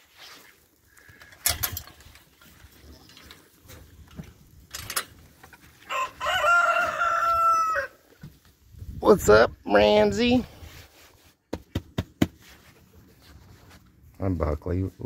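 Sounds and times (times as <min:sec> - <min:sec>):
rooster crowing: 0:05.8 - 0:08.0.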